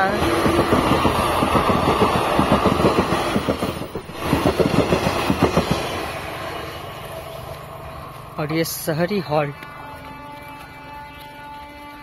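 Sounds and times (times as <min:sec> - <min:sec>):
train wheels clattering over rails: 0:00.0 - 0:07.9.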